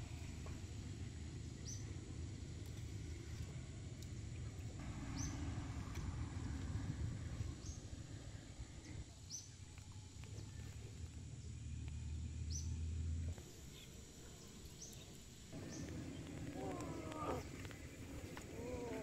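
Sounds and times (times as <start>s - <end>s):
low steady hum: 0.0s - 19.0s
bird chirps: 14.7s - 19.0s
drawn-out animal call: 15.6s - 19.0s.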